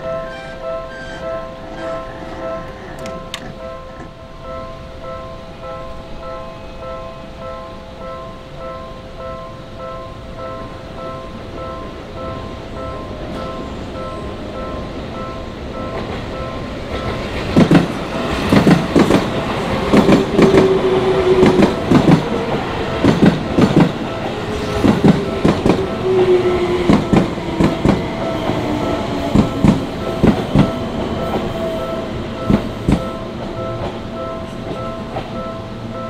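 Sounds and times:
level-crossing alarm ringing: 0.0s - 36.0s
train wheels clacking over joints: 16.9s - 25.9s.

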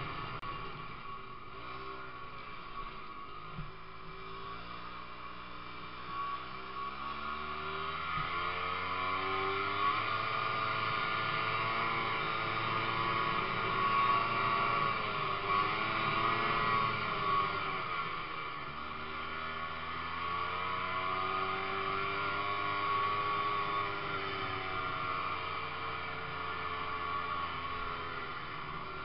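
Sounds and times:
snowmobile engine revving: 4.1s - 18.2s.

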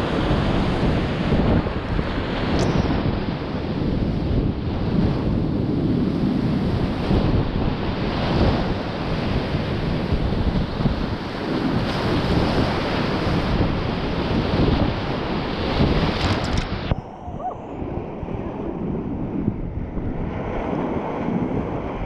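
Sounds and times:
sharp click: 2.6s - 2.9s.

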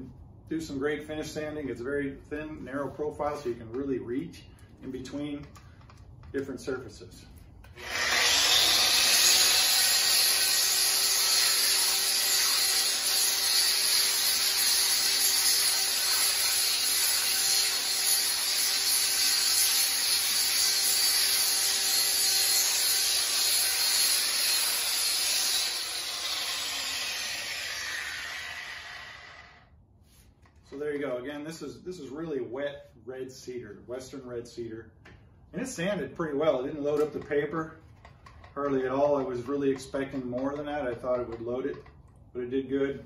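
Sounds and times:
belt sander sanding wood: 7.8s - 29.5s
angle grinder motor whine: 7.8s - 29.7s.

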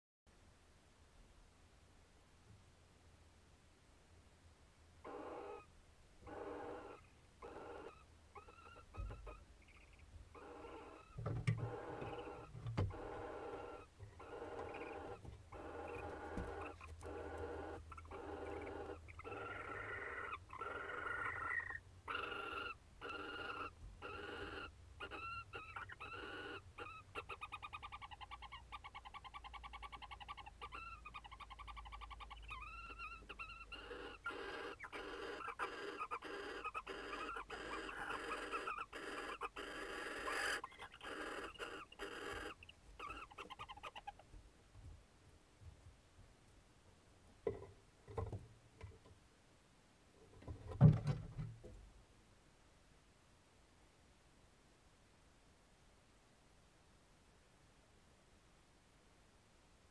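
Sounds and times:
rapid pulsing owl trill: 5.0s - 5.7s, 6.3s - 44.2s
barn owls calling: 5.0s - 44.3s.

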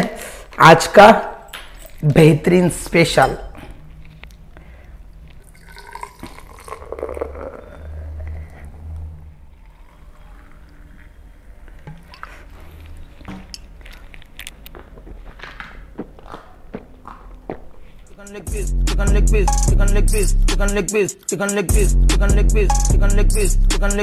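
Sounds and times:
cola poured into a glass: 5.4s - 7.9s, 9.5s - 13.1s.

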